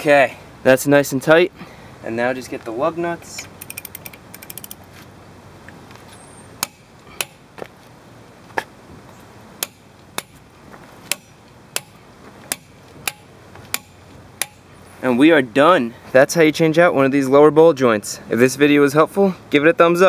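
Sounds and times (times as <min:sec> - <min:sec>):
sharp metallic clicks: 0:03.4 - 0:04.8, 0:11.1 - 0:14.7
wrench ratchet clicking: 0:03.6 - 0:04.8.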